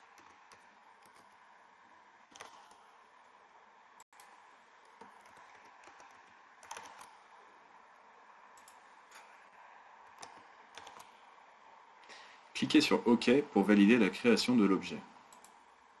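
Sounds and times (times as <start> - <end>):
keyboard keystrokes: 0.0 - 1.4, 2.3 - 2.9, 4.2 - 7.2, 10.1 - 11.2
low steady hiss: 0.0 - 16.0.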